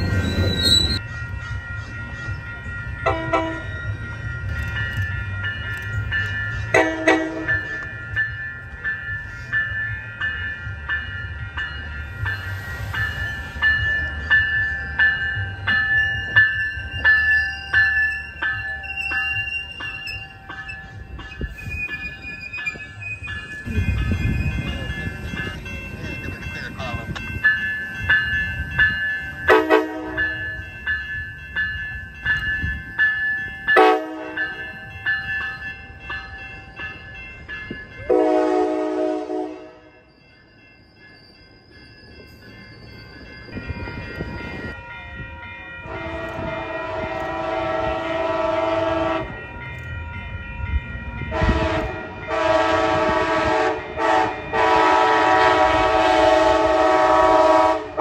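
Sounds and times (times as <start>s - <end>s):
crossing bell ringing: 0.0s - 58.0s
train horn blasts: 3.1s - 3.7s, 6.7s - 7.7s, 29.5s - 30.4s, 33.8s - 34.4s, 38.1s - 39.9s, 45.8s - 49.4s, 51.3s - 58.0s
locomotive multi-note air horn: 6.7s - 7.5s, 29.5s - 30.2s, 38.1s - 39.9s, 45.9s - 49.3s, 51.3s - 58.0s.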